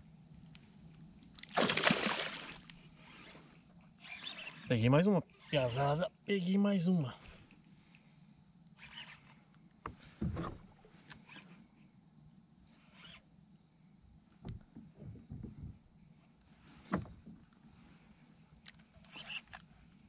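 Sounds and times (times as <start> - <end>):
crickets chirring: 0.0 - 20.0
water splashing: 1.5 - 2.7.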